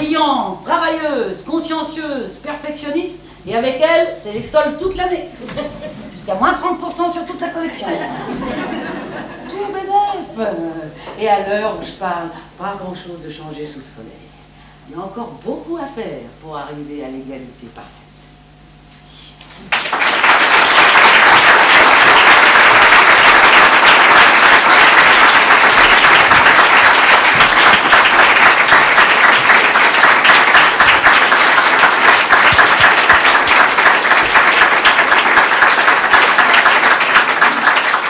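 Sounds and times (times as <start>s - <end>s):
audience applauding: 19.7s - 38.0s.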